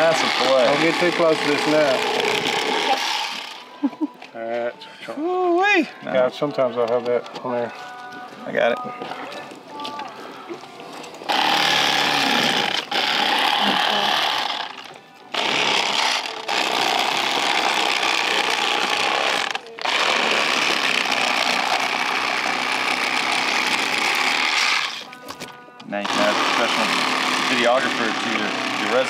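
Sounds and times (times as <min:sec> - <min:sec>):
electric fillet knife buzzing: 0:00.0 - 0:03.8, 0:11.2 - 0:25.2, 0:26.0 - 0:29.0.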